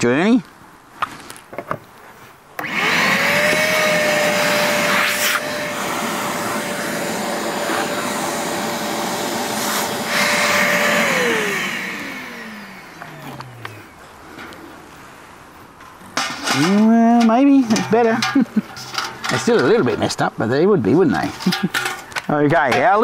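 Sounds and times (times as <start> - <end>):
suction rushing through hose: 2.6 - 12.9
vacuum cleaner motor whining: 2.6 - 14.1.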